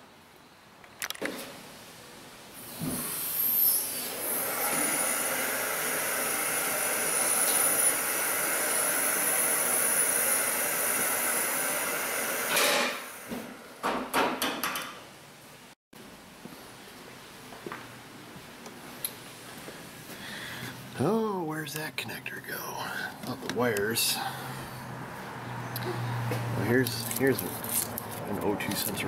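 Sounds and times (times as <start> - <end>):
hydraulic lift hissing and whining: 2.6 - 13.4.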